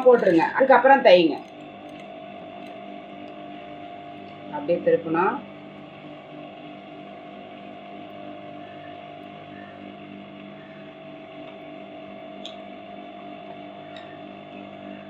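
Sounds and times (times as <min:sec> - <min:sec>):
sewing machine running: 0:00.0 - 0:09.9.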